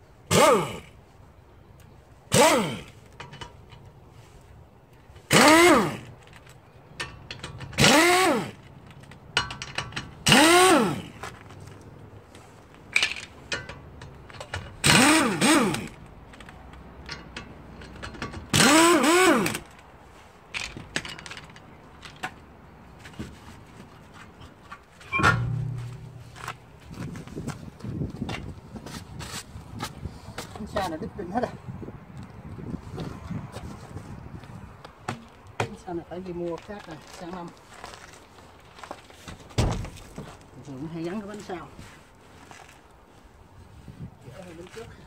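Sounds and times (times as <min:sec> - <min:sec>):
power wrench whirring: 0:02.3 - 0:02.9, 0:05.3 - 0:06.1, 0:07.8 - 0:08.6, 0:10.2 - 0:11.1, 0:14.8 - 0:16.0, 0:18.5 - 0:19.6.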